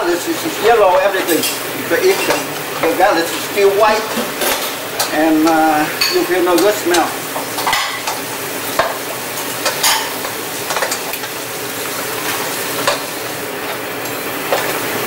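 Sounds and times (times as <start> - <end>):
crab legs sizzling in a pan: 0.0 - 15.0.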